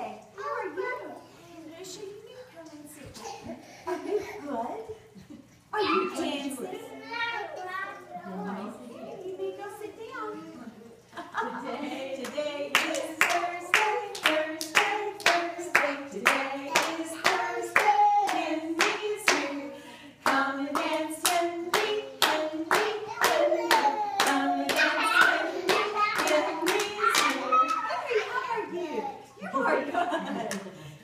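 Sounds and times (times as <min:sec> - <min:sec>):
children's song singing: 0:11.4 - 0:30.2
hand clapping in time: 0:12.2 - 0:19.4, 0:20.3 - 0:27.8.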